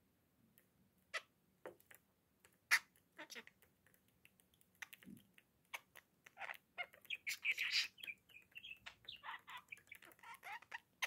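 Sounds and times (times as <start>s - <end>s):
claws and beak ticking: 0.5s - 11.0s
budgerigar chattering and warbling: 2.7s - 3.7s, 4.8s - 11.0s.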